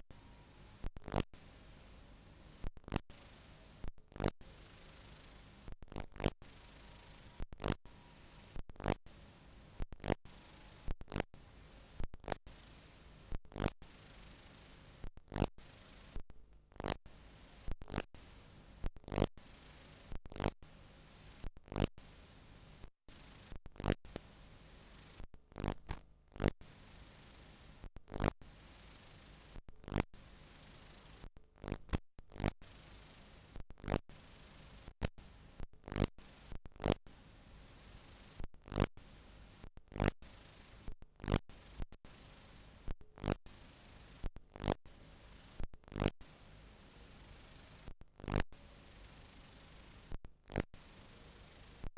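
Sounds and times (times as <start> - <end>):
tape hiss: 0.0 - 20.1, 22.0 - 27.9
crackles and pops: 0.8 - 1.4, 2.6 - 3.2, 3.8 - 4.4, 5.6 - 6.6, 7.3 - 7.9, 8.5 - 9.1, 9.8 - 11.4, 12.0 - 12.5, 13.3 - 13.9, 15.0 - 18.2, 18.8 - 19.4, 20.1 - 20.6, 21.4 - 22.0, 22.8 - 24.3, 25.2 - 26.6, 27.8 - 28.4, 29.5 - 30.1, 31.2 - 32.6, 33.5 - 34.1, 34.9 - 37.0, 38.4 - 39.0, 39.7 - 40.2, 40.8 - 42.0, 42.8 - 43.5, 44.2 - 44.8, 45.6 - 46.2, 47.8 - 48.5, 50.0 - 50.8.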